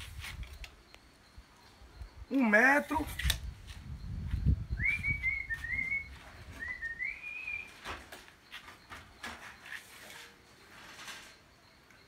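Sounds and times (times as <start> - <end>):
high wavering whistle: 4.5 - 7.9.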